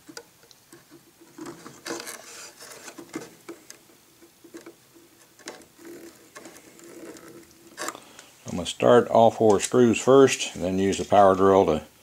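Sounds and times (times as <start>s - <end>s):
rustling scrapes: 0.7s - 8.7s
screws clicking and scratching: 4.5s - 8.2s.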